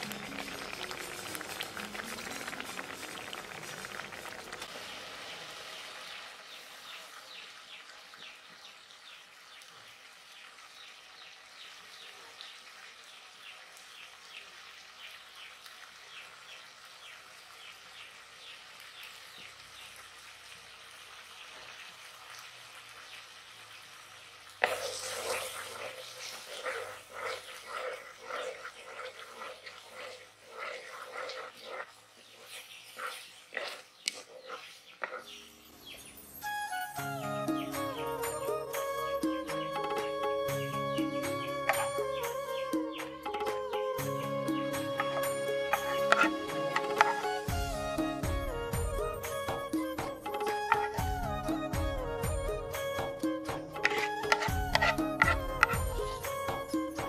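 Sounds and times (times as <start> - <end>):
jam bubbles popping: 0.0 - 4.7.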